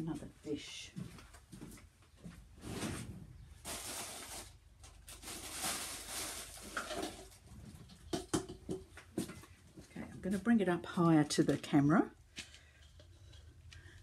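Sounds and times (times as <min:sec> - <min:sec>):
plastic dishes rustling: 0:02.8 - 0:09.6.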